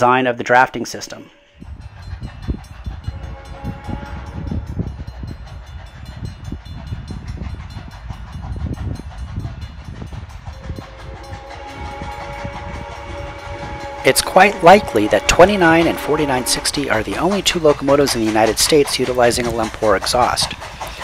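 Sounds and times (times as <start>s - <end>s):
steam locomotive exhaust rumble: 1.5s - 21.0s
steam locomotive whistle: 3.0s - 4.9s, 10.6s - 19.0s.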